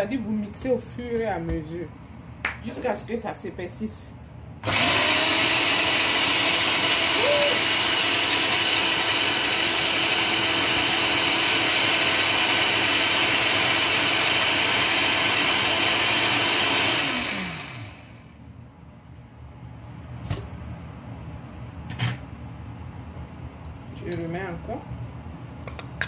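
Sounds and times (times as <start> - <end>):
blender motor running: 4.6 - 18.3.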